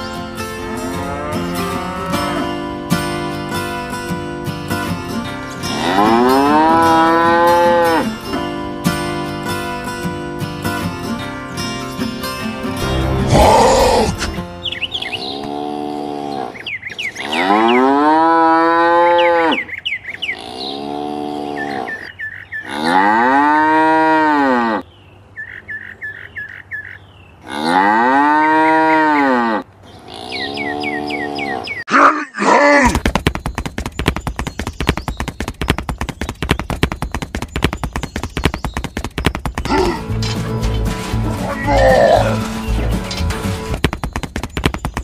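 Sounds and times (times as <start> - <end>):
cow mooing: 0.6 - 2.7, 5.6 - 8.2, 15.2 - 16.6, 17.2 - 19.6, 20.4 - 22.0, 22.6 - 24.8, 27.4 - 32.1, 41.2 - 42.5
rapid sharp taps of footsteps: 32.8 - 41.4, 42.4 - 45.0.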